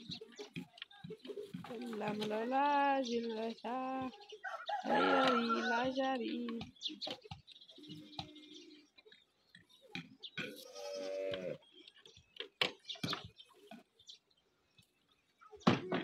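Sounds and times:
buffalo calf bleating: 10.4 - 11.6.

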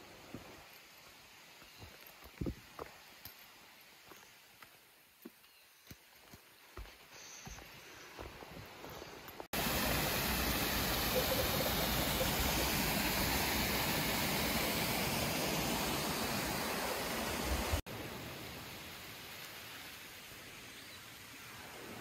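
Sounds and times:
stream rushing over boulders: 0.0 - 4.9, 8.2 - 22.0
faint shallow stream rushing: 8.6 - 22.0.

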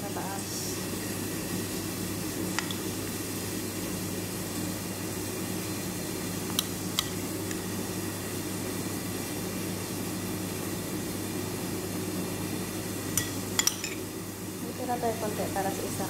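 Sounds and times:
low mechanical hum: 0.0 - 16.0
metal spoon clinking on dish: 13.2 - 14.1.

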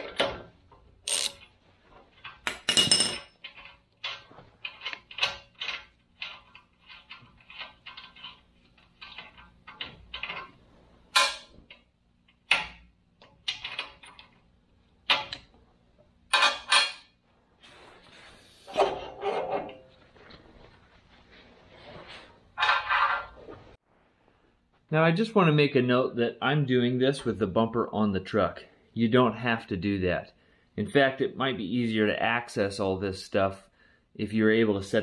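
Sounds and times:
metallic clicks of steel parts: 2.2 - 15.6
metal clanks: 18.7 - 20.0.

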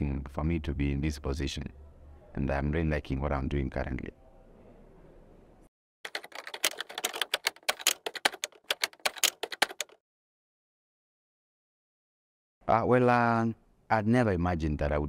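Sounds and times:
typewriter key clacks: 6.1 - 10.0.

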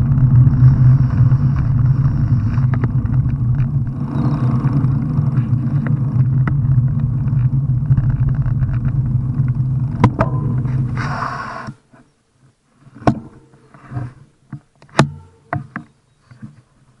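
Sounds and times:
wind and road rumble: 0.0 - 15.0
sharp clicks and knocks: 4.8 - 10.9.

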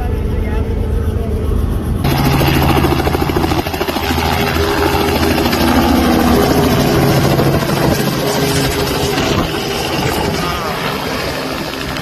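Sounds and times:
muffled cabin drone: 0.0 - 5.6
helicopter rotor beating: 0.0 - 12.0.

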